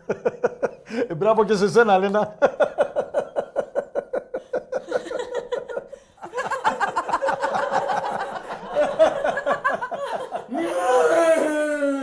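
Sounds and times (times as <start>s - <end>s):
people laughing: 0.0s - 1.0s, 2.3s - 11.6s
woman laughing heartily: 0.0s - 1.0s, 2.5s - 10.7s.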